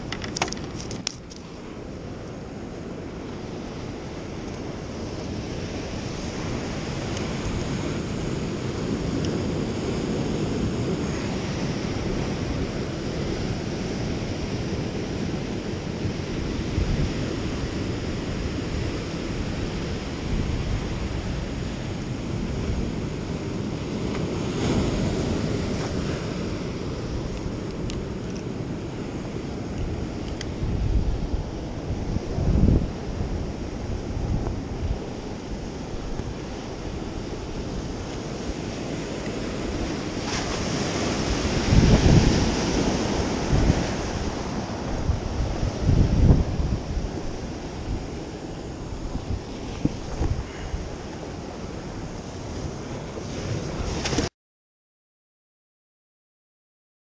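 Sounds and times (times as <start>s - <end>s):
wind on microphone: 0.0s - 54.3s
surf breaking over rocks: 22.3s - 54.3s.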